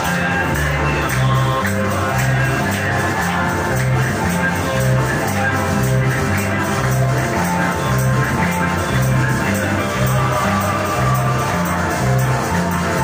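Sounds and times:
up-tempo worship music: 0:00.0 - 0:13.0.

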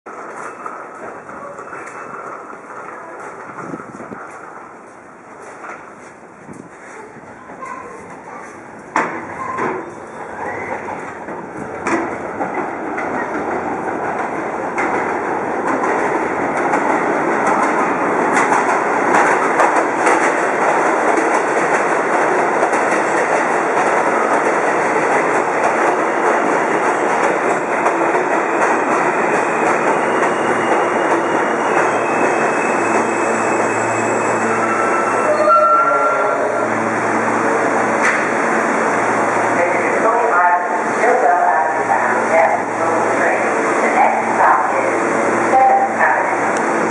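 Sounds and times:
subway train rumble and rail clatter: 0:00.1 - 0:46.9
high whine of train slowing: 0:08.6 - 0:40.0.

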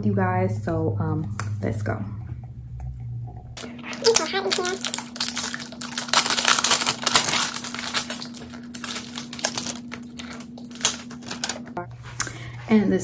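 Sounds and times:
plastic wrap crinkling and tearing: 0:03.6 - 0:11.8.

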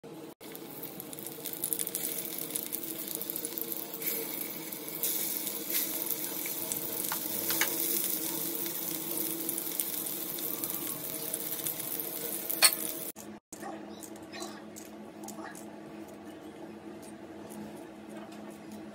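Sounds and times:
food sizzling in hot oil: 0:00.4 - 0:13.2.

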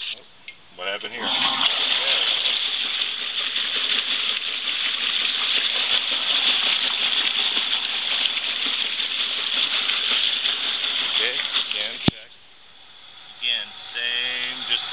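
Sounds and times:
water rushing into washing machine: 0:01.2 - 0:12.2.

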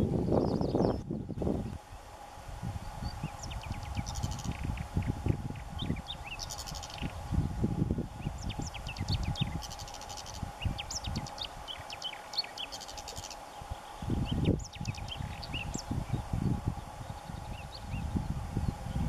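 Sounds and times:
bird singing chirps and trills: 0:00.0 - 0:02.0, 0:02.8 - 0:07.5, 0:08.2 - 0:19.0
low rumbling noise: 0:00.0 - 0:09.6, 0:13.5 - 0:19.0.

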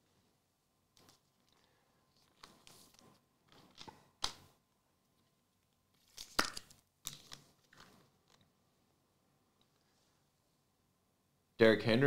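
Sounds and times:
cards rustling: 0:06.0 - 0:08.5.

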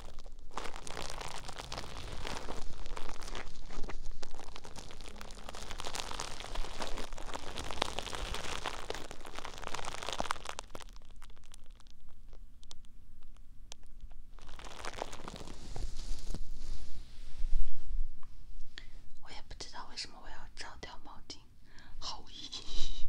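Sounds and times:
object crunching against microphone: 0:00.0 - 0:17.0.

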